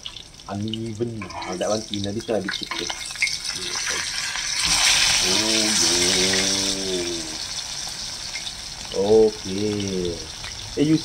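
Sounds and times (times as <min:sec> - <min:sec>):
patties sizzling in oil: 0:00.0 - 0:11.0
man humming: 0:05.2 - 0:07.4, 0:09.0 - 0:10.2.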